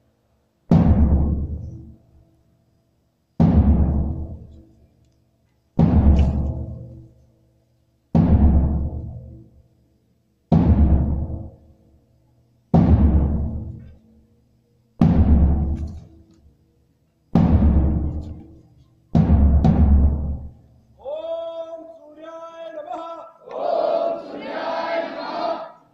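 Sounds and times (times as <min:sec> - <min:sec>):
booming drum hits: 0:00.7 - 0:01.9, 0:03.4 - 0:04.6, 0:05.8 - 0:07.0, 0:08.2 - 0:09.4, 0:10.5 - 0:11.6, 0:12.8 - 0:13.9, 0:15.0 - 0:15.9, 0:17.4 - 0:18.2, 0:19.2 - 0:20.6
voices chanting: 0:21.0 - 0:25.9.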